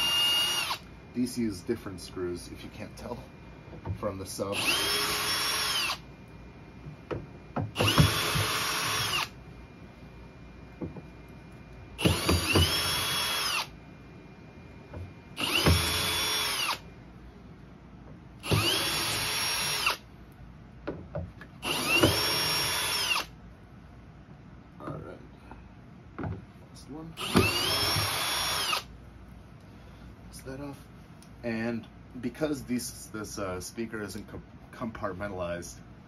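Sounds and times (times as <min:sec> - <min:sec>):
power drill spinning: 0:00.0 - 0:00.9, 0:04.5 - 0:06.0, 0:07.7 - 0:09.4, 0:12.0 - 0:13.7, 0:15.3 - 0:16.8, 0:18.4 - 0:20.0, 0:21.6 - 0:23.3, 0:27.2 - 0:28.9.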